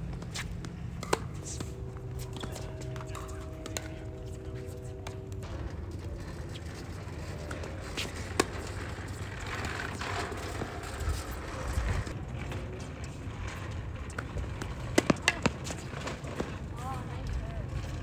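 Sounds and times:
outdoor background noise: 0.0 - 18.0
tennis racket hitting ball: 0.2 - 4.4, 15.0 - 15.8.

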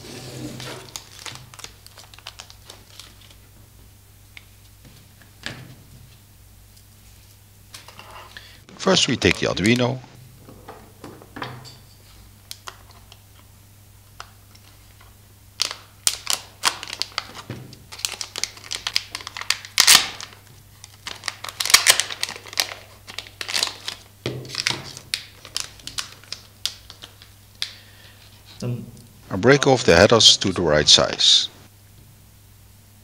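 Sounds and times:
anti-static bag crinkling: 0.6 - 3.6, 12.4 - 28.5.

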